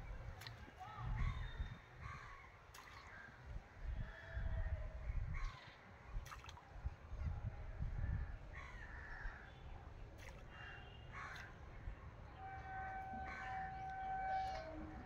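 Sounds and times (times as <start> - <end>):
crows cawing: 10.5 - 11.5, 12.4 - 14.9.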